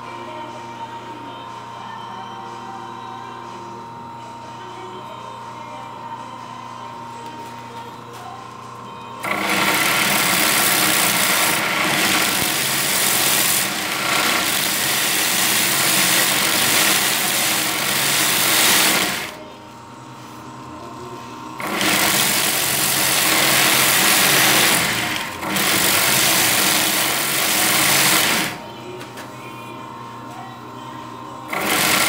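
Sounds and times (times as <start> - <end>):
motor and belt hum: 0.0 - 32.0
belt sander grinding steel: 9.2 - 19.4, 21.6 - 28.6, 31.5 - 32.0.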